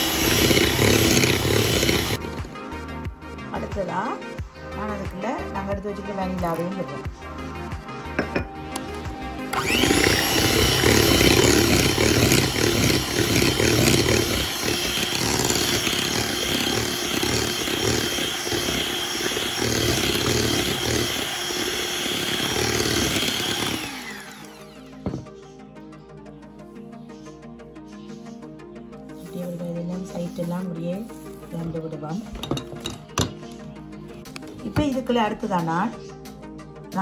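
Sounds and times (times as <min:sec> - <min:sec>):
electric hand mixer beating batter: 0:00.0 - 0:02.6, 0:09.4 - 0:25.3
background music: 0:00.0 - 0:37.0.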